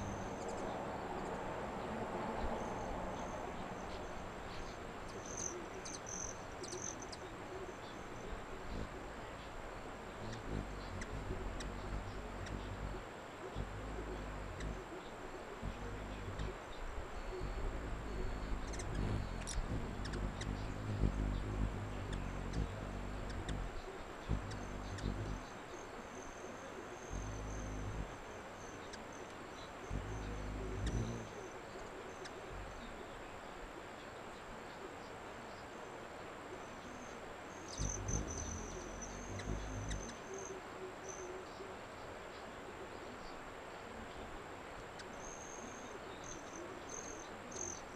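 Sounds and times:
hummingbird wings humming: 0.0s - 33.8s, 36.6s - 41.4s
thin high bird chirps: 15.7s - 26.5s.

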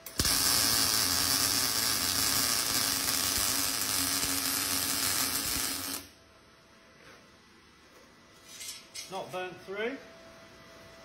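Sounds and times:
welding arc crackling: 0.0s - 6.2s.

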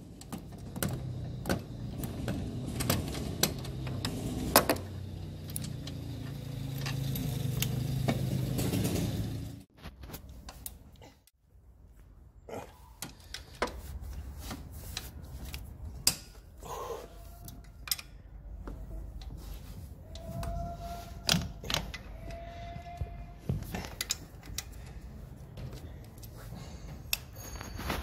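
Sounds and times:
metal tools clinking on engine parts: 2.7s - 9.3s, 26.0s - 28.0s.

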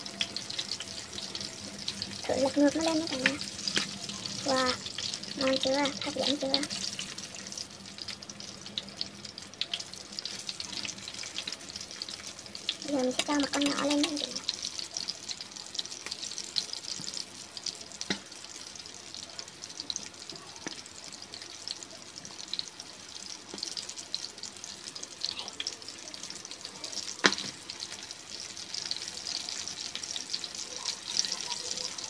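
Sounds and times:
oil sizzling in a frying pan: 0.0s - 32.0s.

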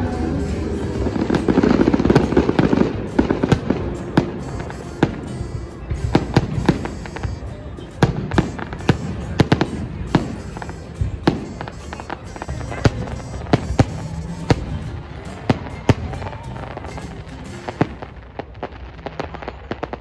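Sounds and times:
fireworks bangs and crackling: 0.0s - 20.0s.

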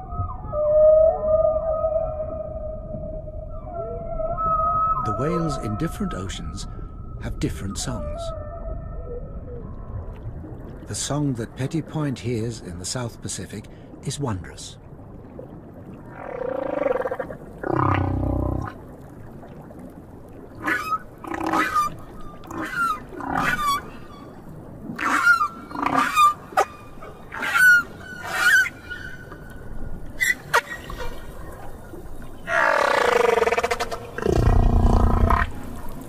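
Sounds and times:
whale cries: 0.0s - 6.3s, 7.8s - 9.7s, 20.6s - 31.4s, 32.4s - 35.8s
whale moans: 16.4s - 18.8s, 32.5s - 35.8s.

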